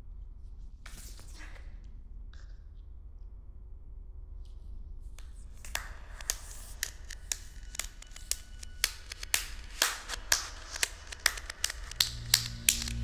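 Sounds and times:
sharp dry clicks: 5.6s - 13.0s
low rumbling drone: 5.9s - 13.0s.

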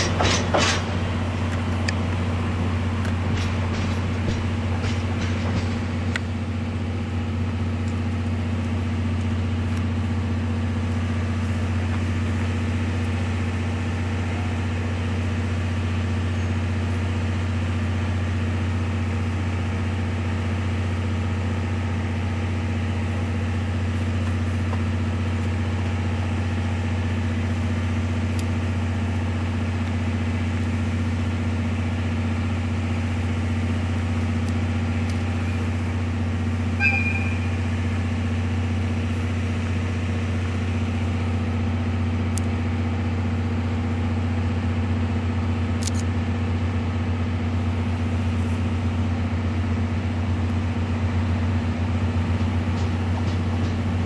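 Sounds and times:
diesel locomotive engine idling: 0.0s - 54.0s.

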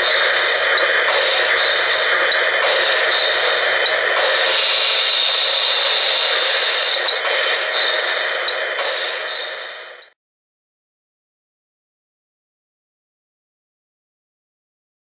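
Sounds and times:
steam hiss: 0.0s - 10.2s.

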